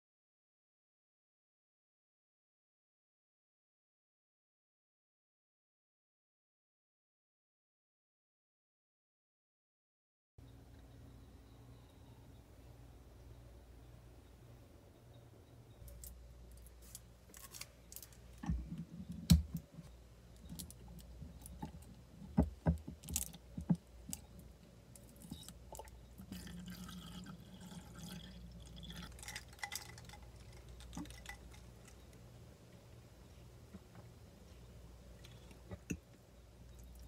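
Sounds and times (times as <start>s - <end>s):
liquid in a glass: 25.0s - 32.2s.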